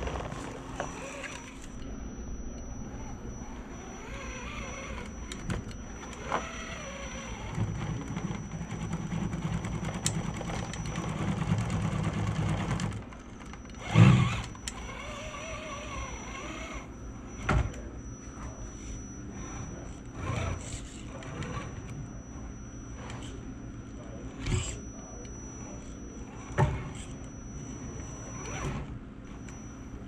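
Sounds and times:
electric motor and gears whirring: 0.0s - 30.0s.

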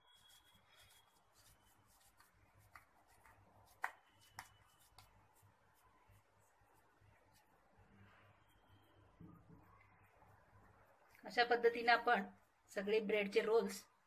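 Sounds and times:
wet rubbing of bread: 0.0s - 8.9s.

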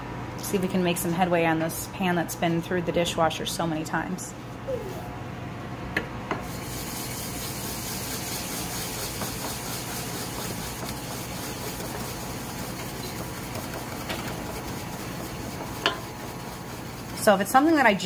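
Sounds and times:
brush scrubbing metal saucepan: 6.5s - 18.0s.

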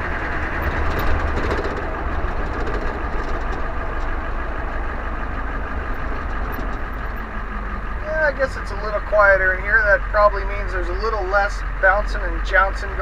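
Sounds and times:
light rattles: 0.0s - 9.9s
diesel engine rumble inside cab: 0.0s - 13.0s
road and drivetrain noise: 0.0s - 13.0s.

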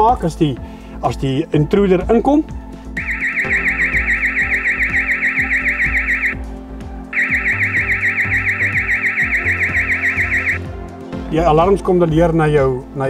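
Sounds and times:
background music with bass: 0.0s - 13.0s
warbling security alarm siren: 3.0s - 6.4s, 7.1s - 10.7s.

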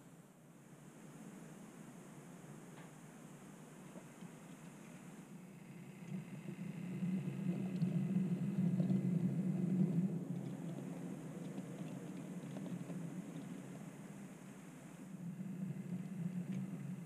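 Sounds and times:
faint ticks: 2.7s - 3.0s, 3.8s - 17.0s
model train rumbling on track: 5.2s - 17.0s.

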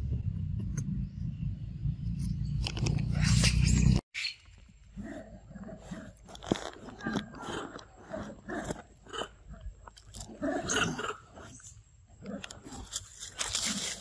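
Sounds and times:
paper carton crunching: 12.8s - 14.0s.

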